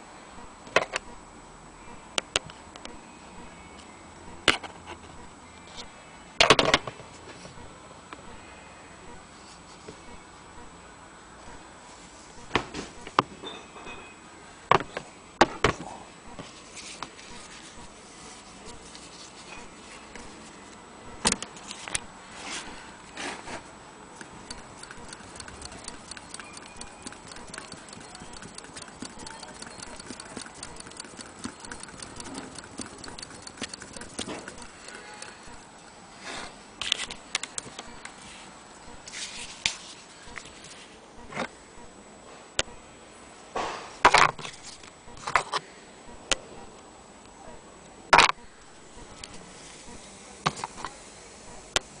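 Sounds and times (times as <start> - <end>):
clicks and knocks of handling: 24.2 - 35.7, 36.8 - 38.2
sewing machine ticking: 24.2 - 35.8.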